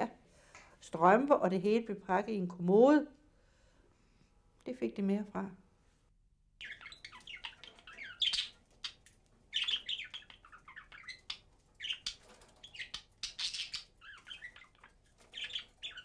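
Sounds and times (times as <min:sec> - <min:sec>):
budgerigar chattering and chirping: 0:06.6 - 0:16.0.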